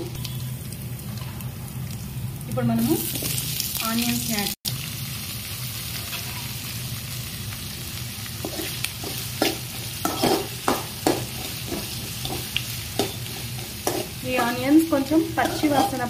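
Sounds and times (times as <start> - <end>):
onions sizzling in hot oil: 0.0 - 16.0
steel spoon scraping a pan: 6.0 - 6.6, 8.4 - 16.0.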